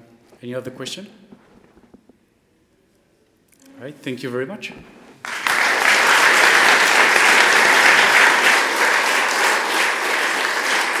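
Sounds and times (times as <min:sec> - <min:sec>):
audience applause: 0:05.2 - 0:11.0.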